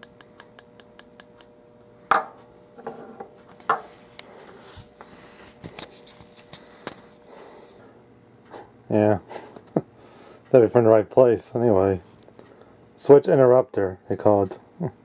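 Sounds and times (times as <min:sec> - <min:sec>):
soft rustling: 0:03.5 - 0:06.6.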